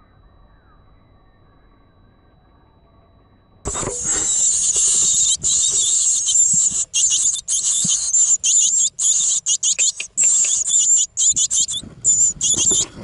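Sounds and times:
nestlings begging calls: 3.7s - 13.0s.

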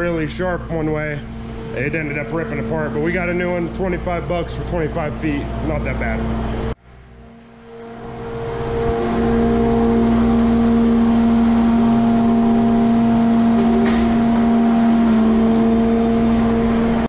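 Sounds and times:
skid steer engine running: 0.0s - 17.0s.

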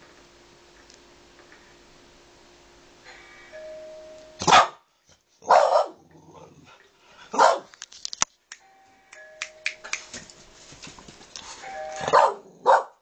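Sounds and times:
doorbell chiming: 3.1s - 4.4s, 8.6s - 9.9s, 11.6s - 12.2s
dog barking: 4.4s - 4.8s, 5.4s - 6.0s, 7.3s - 7.7s, 12.0s - 13.0s.

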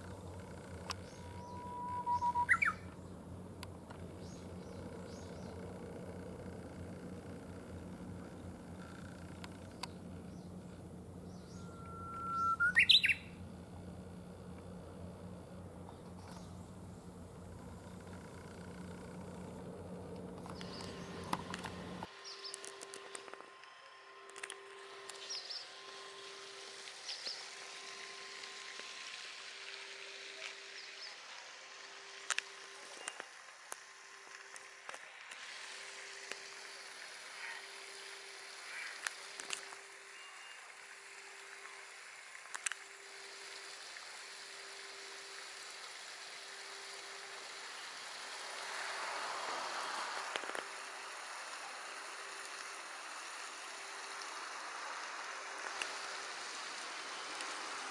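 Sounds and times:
water surging: 25.8s - 57.9s.

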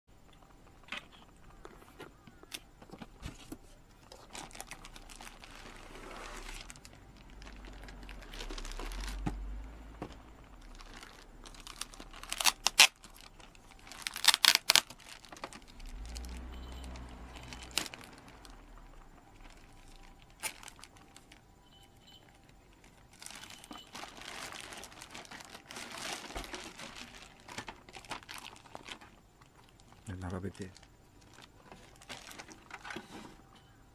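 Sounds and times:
plastic bag crinkling: 3.3s - 33.5s.

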